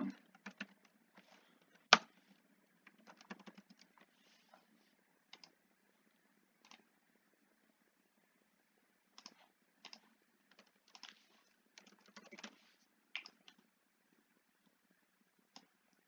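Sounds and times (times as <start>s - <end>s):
computer keyboard keystrokes: 0.3s - 0.9s, 2.9s - 3.9s, 9.2s - 11.2s, 11.8s - 12.6s.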